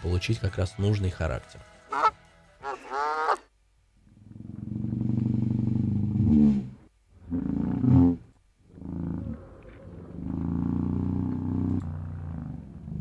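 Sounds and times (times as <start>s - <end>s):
slowed goose call: 1.9s - 3.5s.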